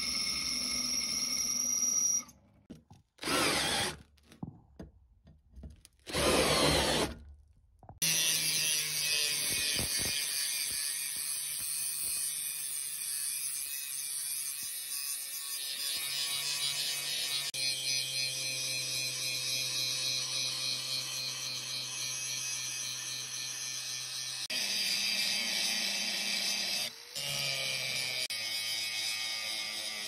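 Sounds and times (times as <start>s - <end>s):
angle grinder grinding steel: 8.0s - 30.0s.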